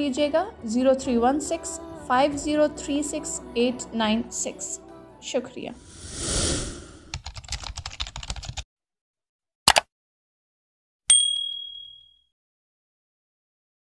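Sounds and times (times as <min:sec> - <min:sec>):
whoosh: 0:05.7 - 0:07.2
bell ding: 0:11.1 - 0:12.3.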